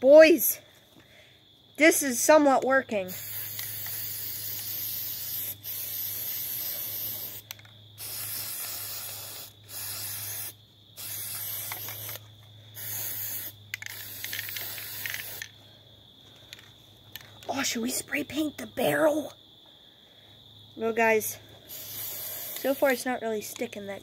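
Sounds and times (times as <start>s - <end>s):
aerosol spray can spraying: 3.1s - 12.2s, 12.8s - 15.5s, 21.7s - 23.1s.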